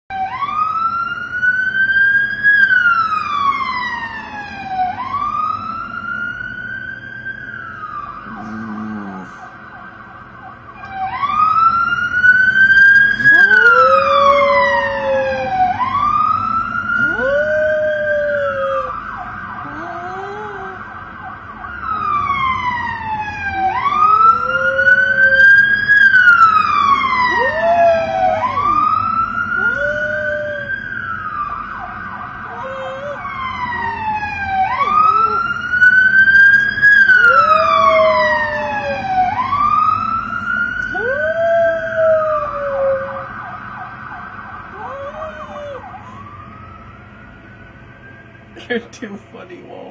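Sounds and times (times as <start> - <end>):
siren wailing: 0.1 - 48.6
dog howling: 8.2 - 9.5, 12.8 - 15.9, 16.9 - 20.8, 23.4 - 25.6, 26.3 - 30.9, 32.4 - 35.6, 37.0 - 39.5, 40.8 - 43.3, 44.7 - 46.1.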